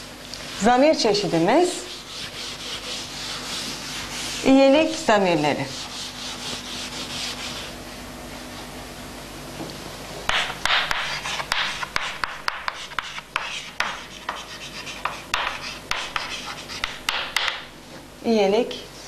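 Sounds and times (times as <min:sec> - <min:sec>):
chalk writing on blackboard: 0:01.7 - 0:04.5, 0:05.7 - 0:07.7, 0:10.3 - 0:17.5
eraser rubbing on chalkboard: 0:01.7 - 0:07.7, 0:10.3 - 0:17.0.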